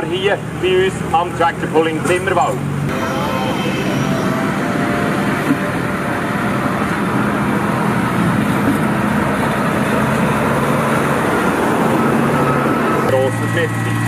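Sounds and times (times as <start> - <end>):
tractor engine running: 4.1 - 14.0.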